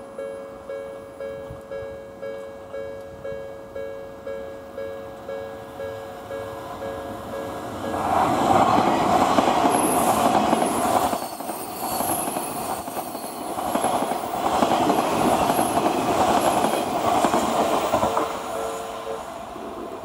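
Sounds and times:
train wheels rumbling on rail: 6.4 - 20.0
high wheel squeals: 10.7 - 13.8.

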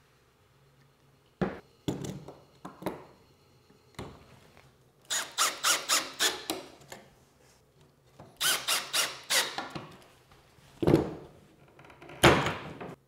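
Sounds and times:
cordless drill cutting: 5.1 - 6.5, 8.4 - 9.6.

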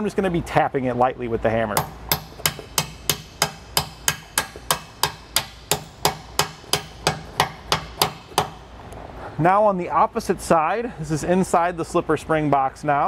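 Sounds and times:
hammer tapping a bolt: 1.8 - 8.6.

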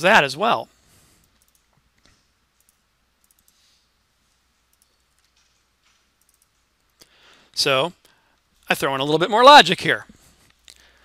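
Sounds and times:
computer mouse clicks: 1.2 - 3.7, 4.6 - 7.1.

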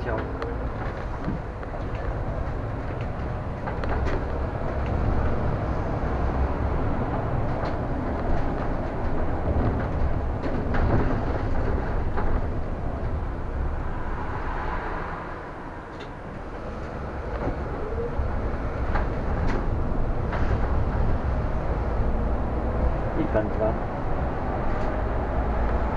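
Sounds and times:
rattles and clicks: 0.0 - 13.8, 15.9 - 21.9
bus engine and road rumble: 0.0 - 25.9.

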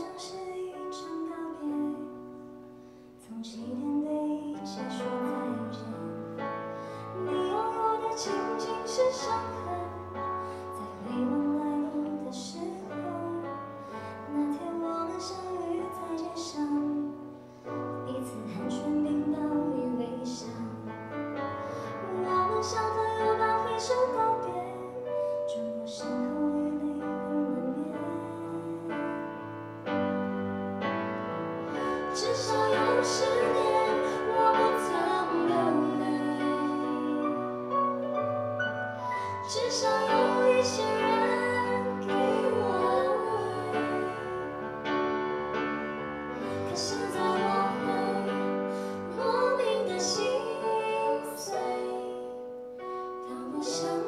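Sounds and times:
vocal group singing: 7.1 - 13.0, 31.5 - 37.9, 38.9 - 52.6, 53.3 - 54.0.

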